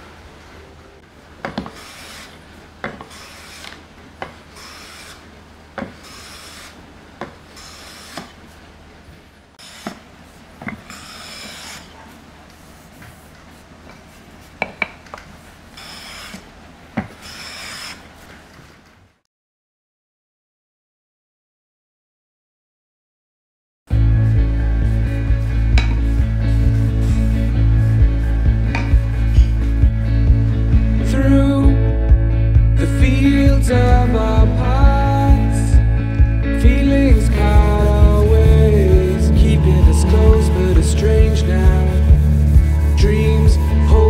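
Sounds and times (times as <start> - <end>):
blade scraping wood: 1.5 - 3.8, 4.6 - 6.8, 7.6 - 8.4, 9.6 - 13.4.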